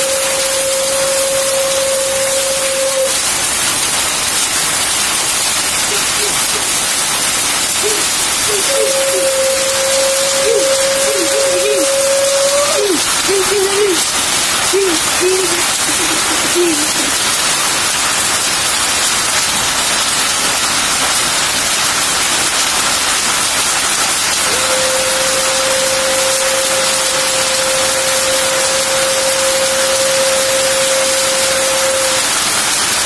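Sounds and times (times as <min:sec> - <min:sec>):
rain and hail on tin roofs: 0:00.0 - 0:33.0
short wavering sounds: 0:07.8 - 0:17.2.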